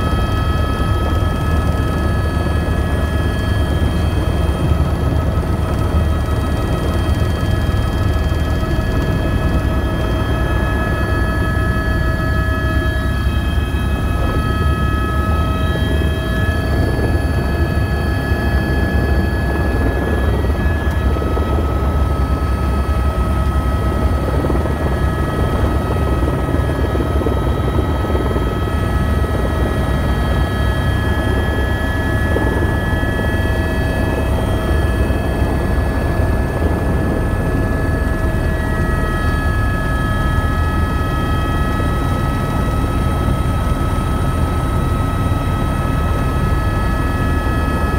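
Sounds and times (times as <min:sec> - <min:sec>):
helicopter engine and rotor: 0:00.0 - 0:47.9.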